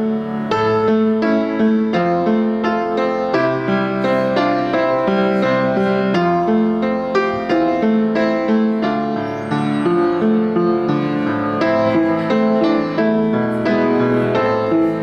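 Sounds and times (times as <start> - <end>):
slow piano melody: 0.0 - 15.0.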